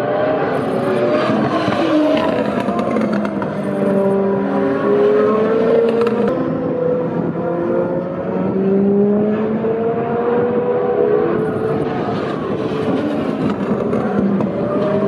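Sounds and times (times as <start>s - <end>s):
race car engines passing: 0.0s - 15.0s.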